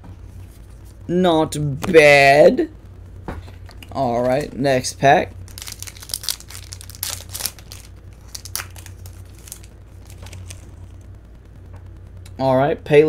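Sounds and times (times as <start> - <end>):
steady low hum: 0.0 - 13.0
foil pack crinkling and tearing: 5.5 - 11.0.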